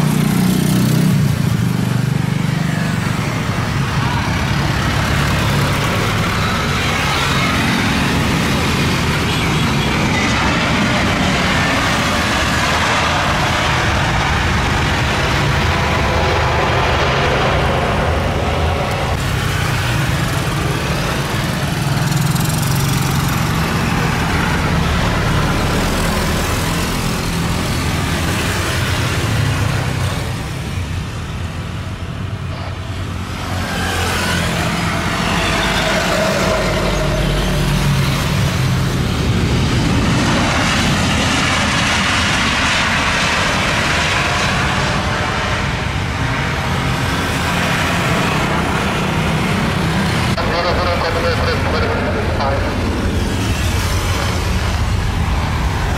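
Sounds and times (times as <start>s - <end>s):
jet engines rushing: 0.0s - 55.9s.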